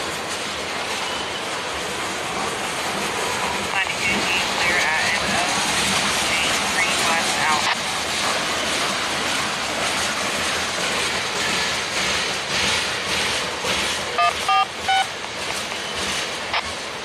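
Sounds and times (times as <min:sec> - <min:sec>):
freight train wheels on rails: 0:00.0 - 0:17.0
short electronic beeps: 0:14.2 - 0:15.1.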